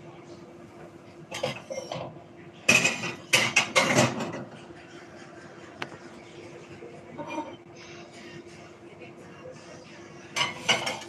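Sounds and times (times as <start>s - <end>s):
kitchenware clattering: 1.3s - 4.6s, 10.3s - 11.0s.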